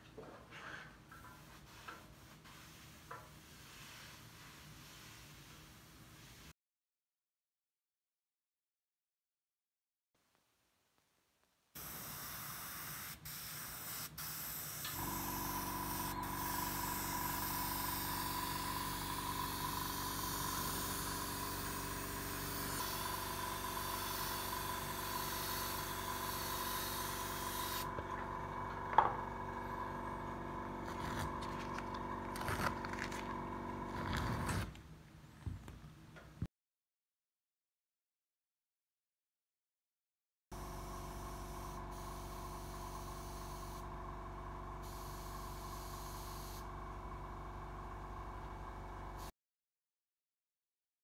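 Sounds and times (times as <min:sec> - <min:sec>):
airbrush spraying hiss: 0:11.8 - 0:27.9
air compressor hum: 0:11.8 - 0:34.6, 0:40.6 - 0:49.3.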